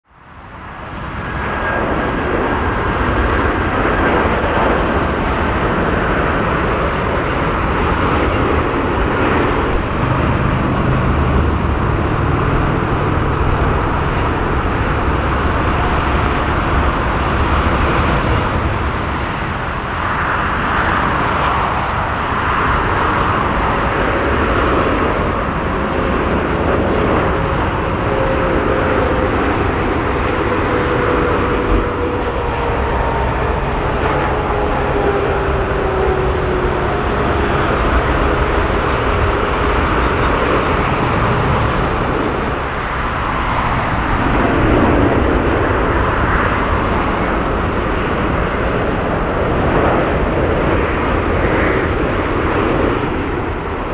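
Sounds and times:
jet engine noise: 0.0 - 53.9.

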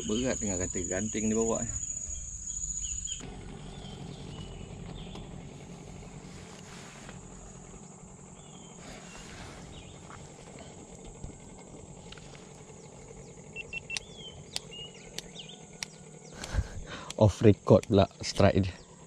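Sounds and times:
high-pitched insect drone: 0.0 - 3.2, 9.8 - 19.0
bird chirps: 0.0 - 5.4, 8.3 - 10.8, 12.6 - 17.1
sharp clicks: 13.6 - 18.5.

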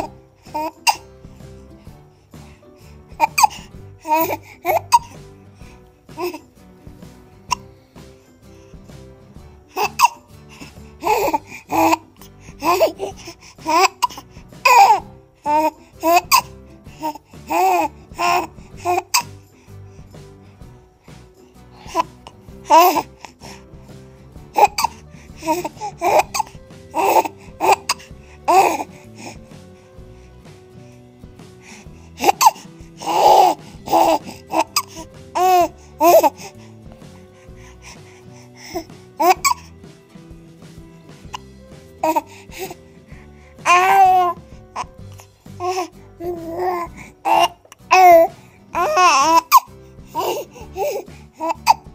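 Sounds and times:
baby babbling and laughing: 0.0 - 1.1, 3.1 - 5.2, 6.1 - 6.4, 9.8 - 19.4, 21.8 - 23.5, 24.6 - 29.4, 32.2 - 36.6, 38.6 - 39.7, 41.3 - 42.8, 43.6 - 51.9
background music: 0.0 - 51.9.

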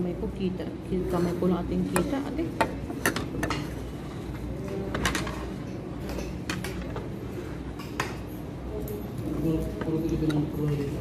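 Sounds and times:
room noise: 0.0 - 11.0
cutlery clinking on plates: 1.9 - 4.0, 4.6 - 11.0.

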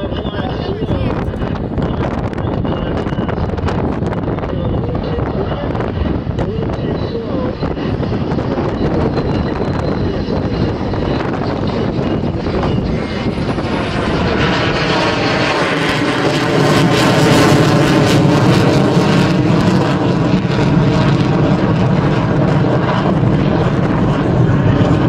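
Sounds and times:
fighter jet engine roaring: 0.0 - 25.0.

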